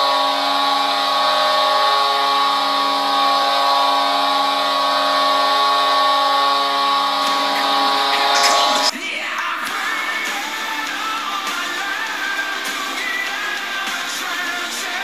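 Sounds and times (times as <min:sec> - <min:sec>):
goal horn blast: 0:00.0 - 0:08.9.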